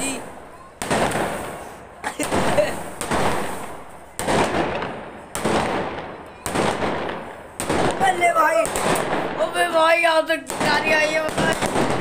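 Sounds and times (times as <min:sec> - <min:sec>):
fireworks bangs: 0:00.0 - 0:12.0.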